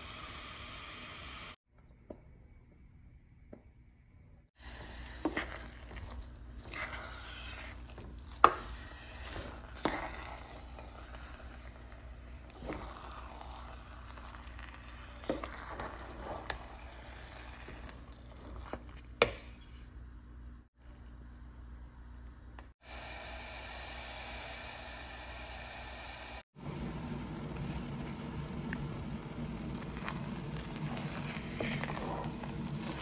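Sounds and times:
spoon stirring sticky rice: 4.6s - 19.8s, 27.1s - 33.0s
low sizzle: 4.6s - 33.0s.

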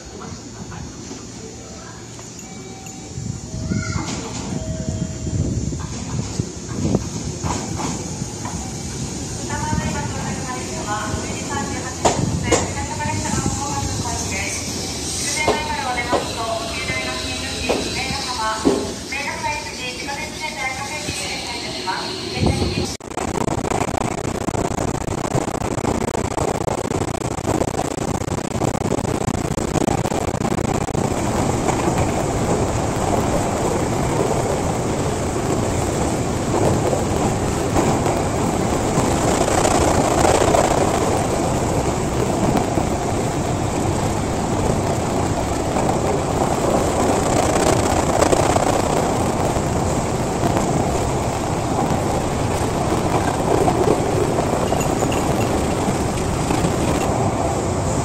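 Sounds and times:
train wheels on rails: 0.0s - 23.0s, 27.6s - 58.0s
train motors running: 51.6s - 57.2s.

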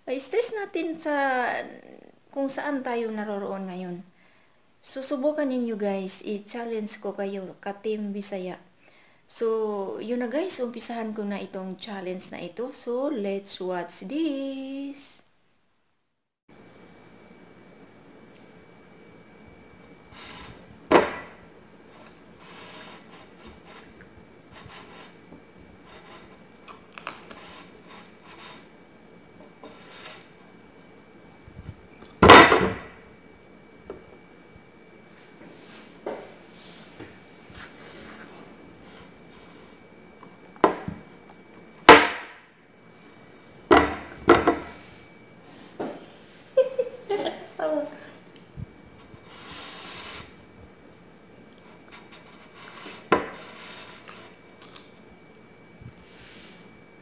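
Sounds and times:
banana and plate knocking on table: 20.9s - 21.4s, 41.9s - 42.4s, 43.7s - 44.7s
banana scraping on a plate: 21.9s - 28.7s, 29.6s - 30.4s, 49.0s - 50.4s, 51.8s - 54.4s.

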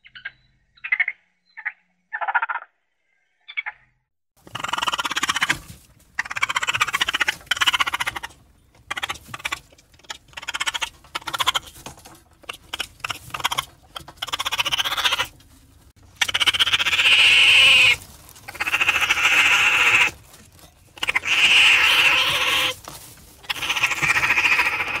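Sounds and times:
raccoon rasping calls: 4.4s - 15.4s, 16.0s - 22.8s, 23.4s - 25.0s.

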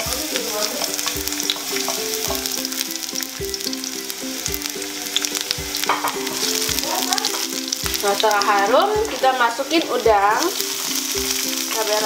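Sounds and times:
background music with steady beat: 0.0s - 12.0s
garlic sizzling in hot oil: 0.0s - 12.0s
garlic slices dropping into pan: 4.5s - 12.0s.

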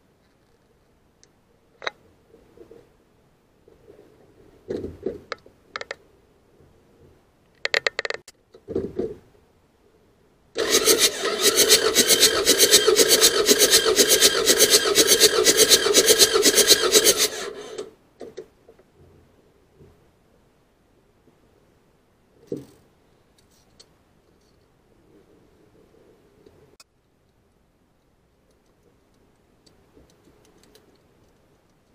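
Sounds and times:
diesel engine cranking on starter: 10.6s - 17.9s.

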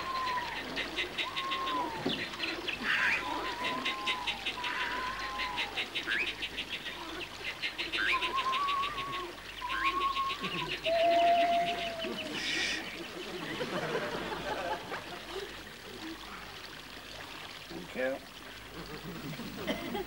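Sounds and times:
bird whistled notes: 8.0s - 11.9s
bird ticking trill: 8.0s - 12.0s.

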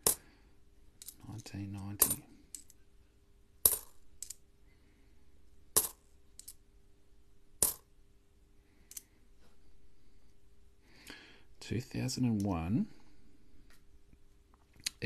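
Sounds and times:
coins clinking: 5.8s - 6.6s, 7.6s - 7.8s.

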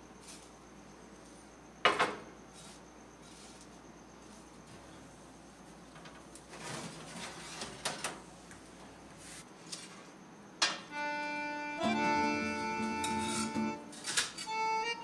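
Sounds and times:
baking tray scraping: 6.5s - 8.1s
background music with held chords: 10.9s - 15.0s.

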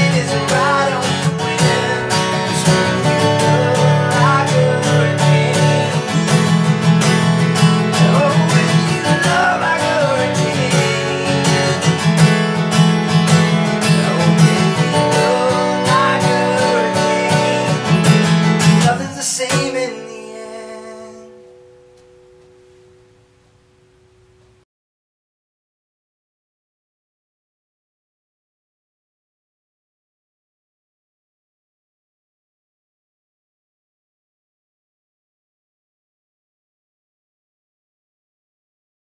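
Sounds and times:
acoustic guitar strumming: 0.0s - 24.6s.

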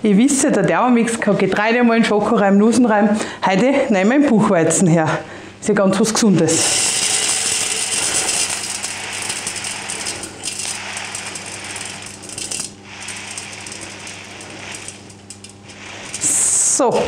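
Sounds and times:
grains pouring into metal bowl: 6.6s - 17.0s.

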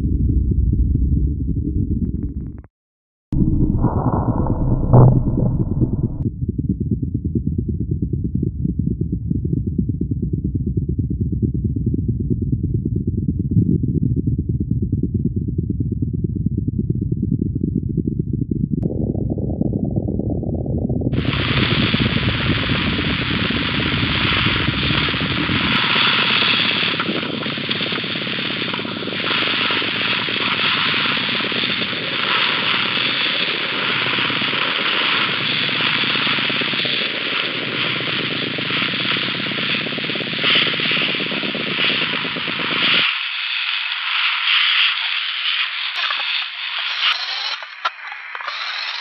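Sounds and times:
deep rumble: 0.0s - 2.7s, 3.3s - 42.8s
loud noisy hiss: 21.2s - 49.0s.

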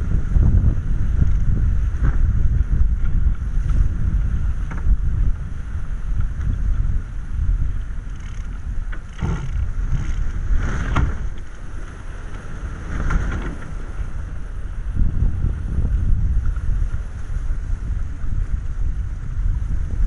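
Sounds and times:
water rushing along hull: 0.0s - 20.0s
wind buffeting microphone: 0.0s - 20.0s.

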